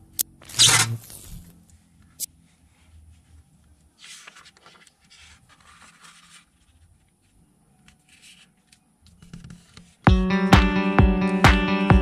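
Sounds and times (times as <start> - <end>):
paper being folded and creased: 0.5 - 1.5, 3.9 - 10.0.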